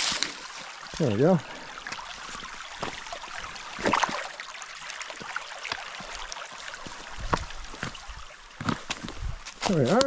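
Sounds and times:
creek rushing: 0:00.0 - 0:10.0
footsteps on rocks: 0:01.9 - 0:03.1, 0:05.2 - 0:10.0.

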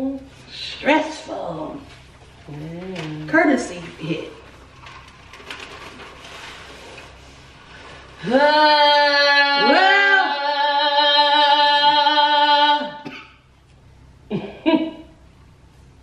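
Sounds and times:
woman singing unaccompanied: 0:08.2 - 0:13.1.

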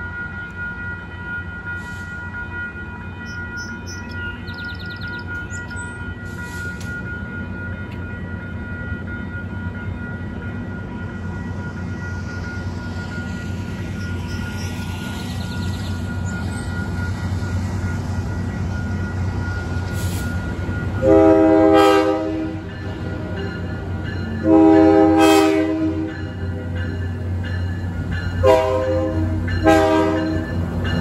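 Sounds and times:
locomotive horn chord: 0:21.0 - 0:22.7, 0:24.4 - 0:26.2, 0:28.4 - 0:30.5.

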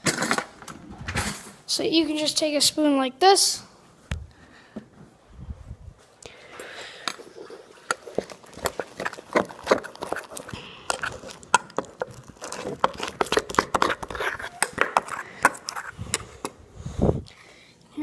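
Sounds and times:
metal spoon scraping metal bowl: 0:08.1 - 0:16.0.

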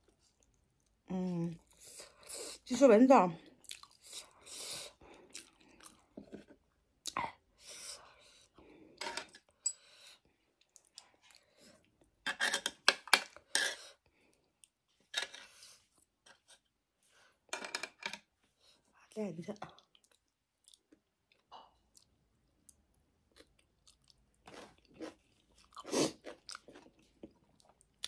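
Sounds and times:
close-up chewing: 0:03.4 - 0:06.2, 0:19.7 - 0:28.0.

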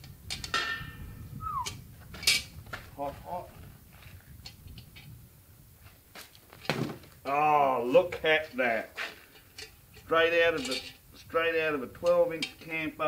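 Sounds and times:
metal clanks and scrapes: 0:00.2 - 0:01.2, 0:02.1 - 0:02.6, 0:08.9 - 0:13.0
ringing metal clang: 0:00.4 - 0:01.3
brief squeal: 0:01.4 - 0:01.7.

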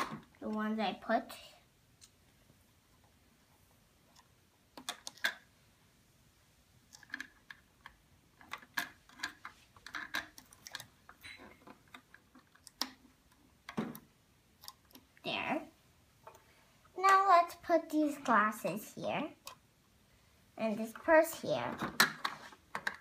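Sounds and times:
plastic clicks and taps: 0:21.7 - 0:23.0.

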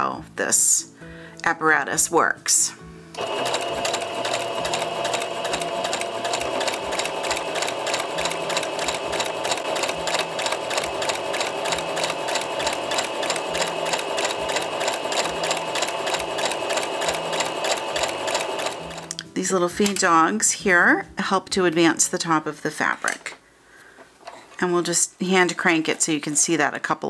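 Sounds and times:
sewing machine stitching: 0:03.2 - 0:19.1.

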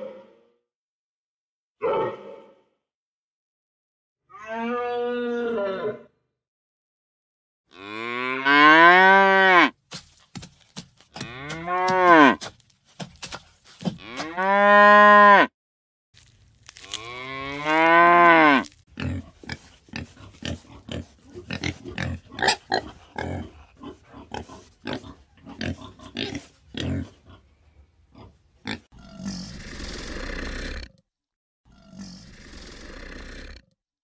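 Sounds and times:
cow mooing: 0:07.7 - 0:09.8, 0:11.2 - 0:12.4, 0:14.0 - 0:15.5, 0:16.9 - 0:18.7
animal grunts: 0:28.2 - 0:31.0, 0:31.7 - 0:33.7.

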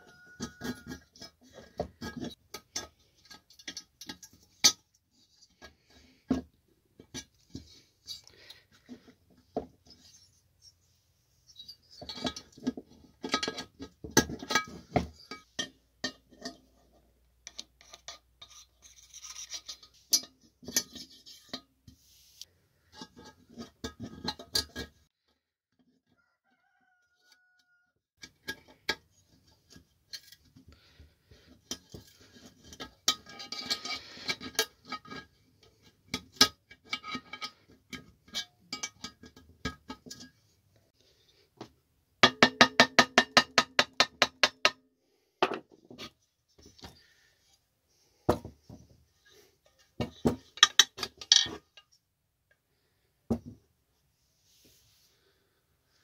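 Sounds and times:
metal parts and tools clinking: 0:00.0 - 0:05.6, 0:11.5 - 0:16.7, 0:31.5 - 0:35.4, 0:49.6 - 0:52.0.

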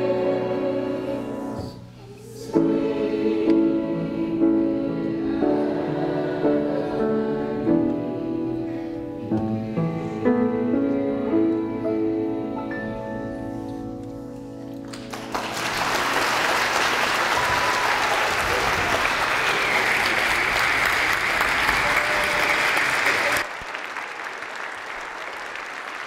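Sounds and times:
choir singing with piano: 0:00.0 - 0:14.8
audience applause: 0:14.9 - 0:26.0.

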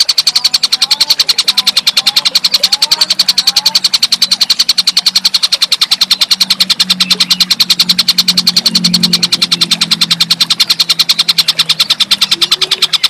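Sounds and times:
low steady hum: 0:00.0 - 0:13.0
rapid high bird rattle: 0:00.0 - 0:13.0.

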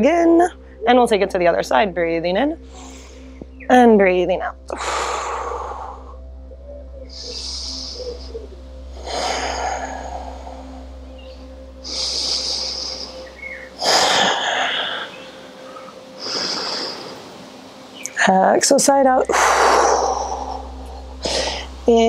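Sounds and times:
person breathing deeply: 0:02.6 - 0:03.6, 0:04.7 - 0:17.4, 0:19.3 - 0:21.9.

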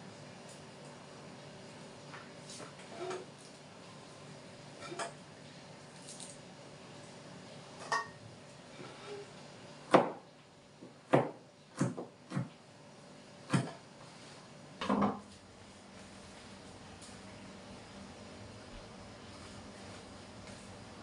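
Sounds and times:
knife chopping on cutting board: 0:09.9 - 0:10.2, 0:11.1 - 0:12.5, 0:13.5 - 0:13.8.

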